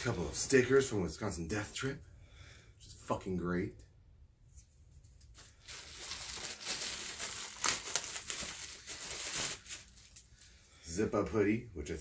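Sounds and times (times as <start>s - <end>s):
plastic bag crinkling: 5.3s - 10.5s.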